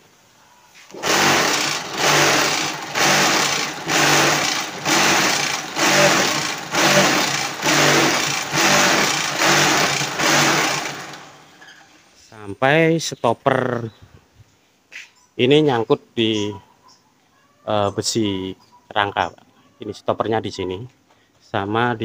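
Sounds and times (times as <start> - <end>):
vibrator motors buzzing rattle: 1.0 - 11.8.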